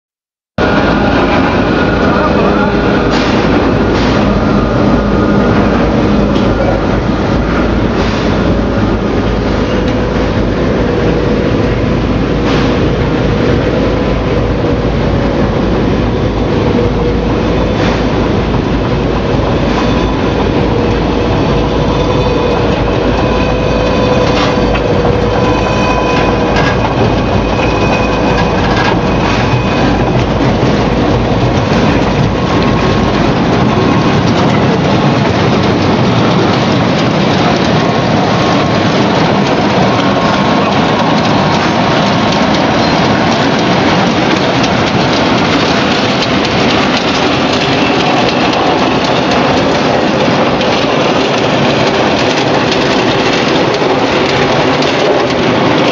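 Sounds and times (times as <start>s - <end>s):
processing machinery clattering: 0.6s - 55.9s
scattered clicks: 23.9s - 55.9s.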